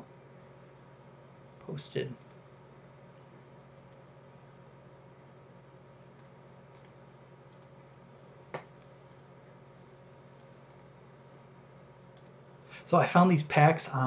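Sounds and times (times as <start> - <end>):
steady low hum: 0.0 - 14.0
computer mouse clicks: 2.2 - 2.4, 3.9 - 4.1, 6.1 - 7.8, 8.6 - 9.4, 10.4 - 10.9, 12.1 - 12.4.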